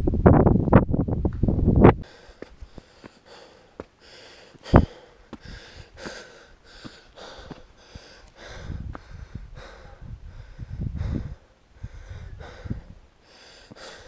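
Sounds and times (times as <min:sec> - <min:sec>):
person breathing hard: 0:02.0 - 0:14.0
footsteps on rock: 0:02.3 - 0:09.1.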